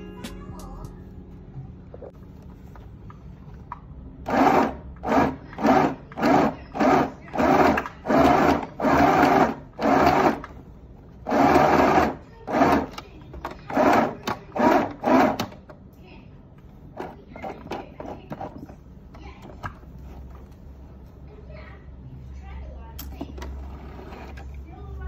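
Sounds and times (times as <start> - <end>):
sewing machine stitching: 4.2 - 10.6, 11.2 - 15.6, 23.4 - 24.6.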